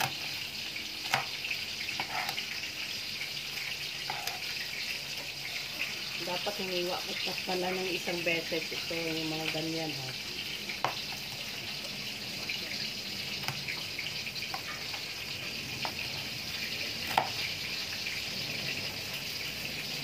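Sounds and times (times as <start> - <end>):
oil sizzling in a pan: 0.0 - 20.0
knife tapping cutting board: 1.0 - 1.3, 17.1 - 17.4.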